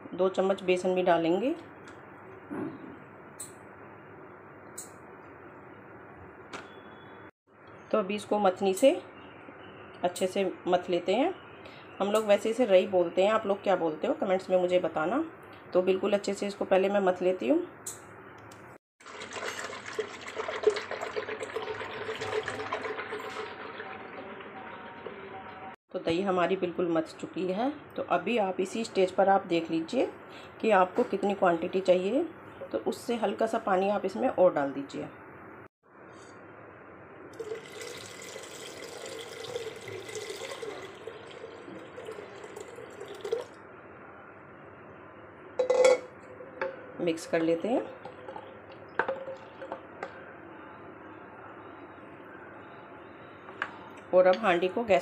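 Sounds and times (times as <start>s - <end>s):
liquid sloshing in a pot: 19.0s - 25.2s, 37.4s - 43.6s, 47.9s - 49.9s
water pouring and splashing: 19.0s - 25.2s, 37.4s - 43.6s.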